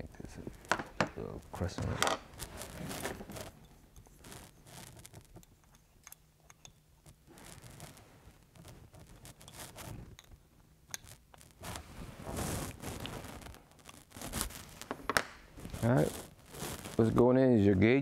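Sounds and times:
small metal parts clicking and scraping: 8.6s - 11.5s.

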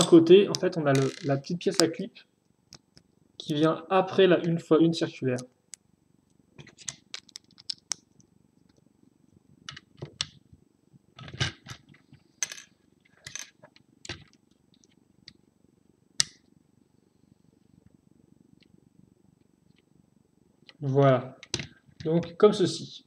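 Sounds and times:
plastic bricks clicking: 1.0s - 1.3s, 6.8s - 8.0s.

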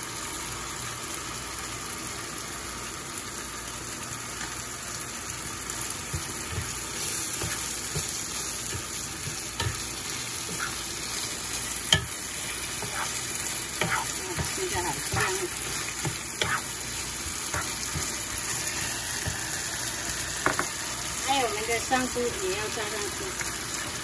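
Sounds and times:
food sizzling in a frying pan: 0.0s - 24.0s
spatula scraping and tapping: 6.1s - 19.5s, 20.4s - 20.7s.

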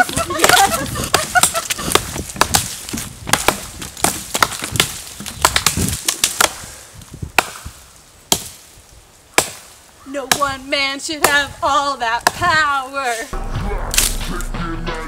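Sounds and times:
hatchets chopping dry branch: 0.1s - 6.7s, 7.3s - 8.7s, 9.3s - 10.6s, 13.9s - 14.2s.

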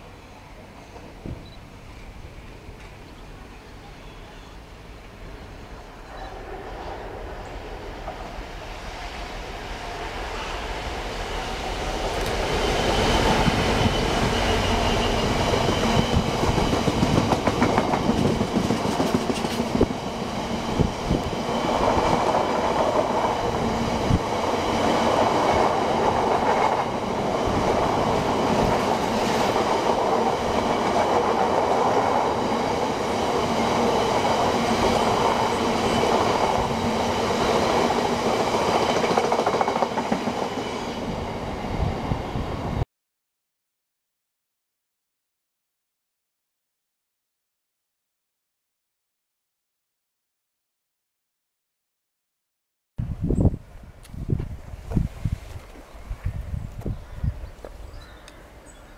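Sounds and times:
diesel locomotive engine: 0.0s - 42.8s.

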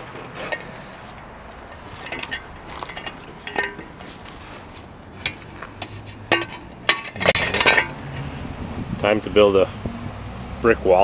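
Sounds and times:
hard objects clinking: 1.8s - 4.1s, 5.2s - 8.0s.

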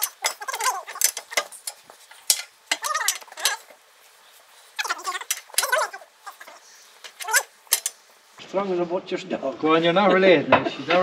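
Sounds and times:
voices: 2.4s - 3.8s, 4.4s - 11.0s.

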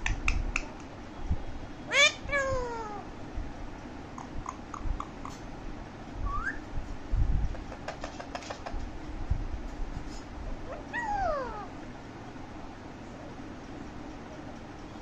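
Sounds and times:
parakeet whistling and chirping: 6.2s - 6.7s.

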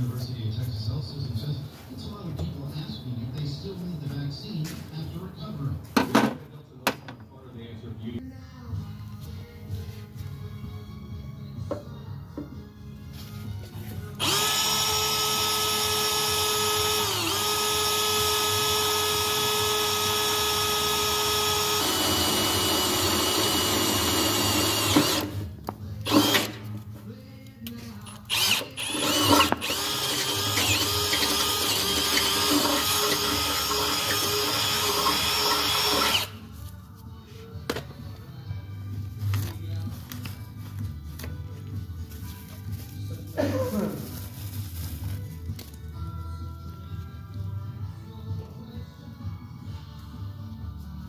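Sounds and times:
cordless drill boring into metal: 14.2s - 25.4s, 26.0s - 26.6s, 28.3s - 36.4s.

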